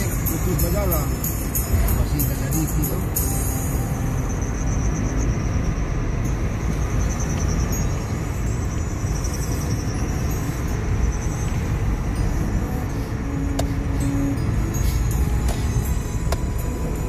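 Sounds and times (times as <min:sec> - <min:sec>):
car road and engine rumble: 0:00.0 - 0:17.0.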